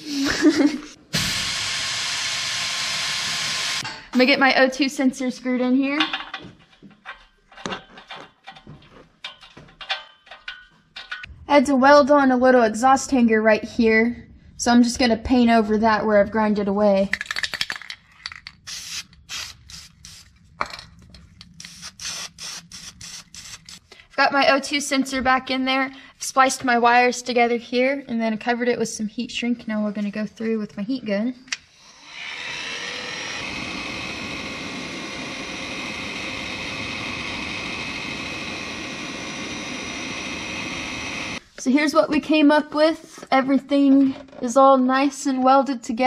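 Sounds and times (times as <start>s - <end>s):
heat gun fan whirring: 1.1s - 3.8s, 18.7s - 20.4s, 21.4s - 23.9s, 31.8s - 41.4s
spray paint can hissing: 18.6s - 20.4s, 21.4s - 23.9s.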